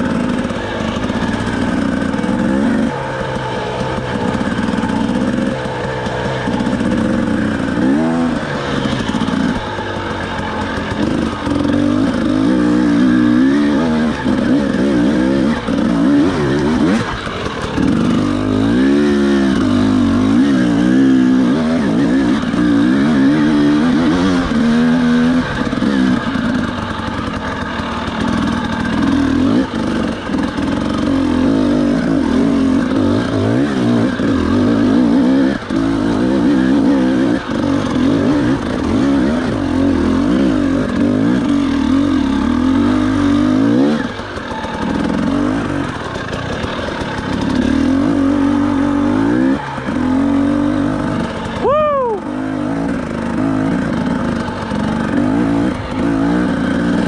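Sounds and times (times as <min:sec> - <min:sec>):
quadcopter motors whining: 0:51.2 - 0:52.3.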